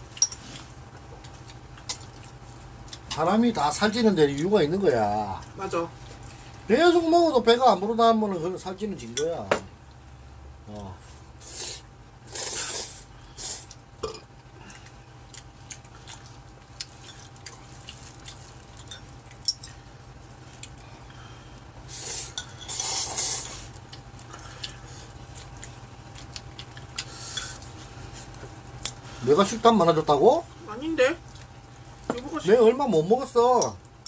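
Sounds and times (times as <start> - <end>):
noodles being slurped: 21.9 - 23.7.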